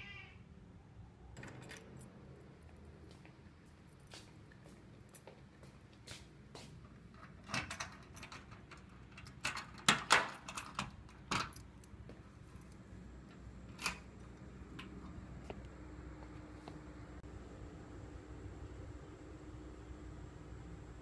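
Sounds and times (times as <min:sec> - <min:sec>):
footsteps on tiled floor: 0:02.9 - 0:07.1, 0:12.0 - 0:12.4, 0:15.4 - 0:16.9
door being unlocked and opened: 0:07.2 - 0:11.8.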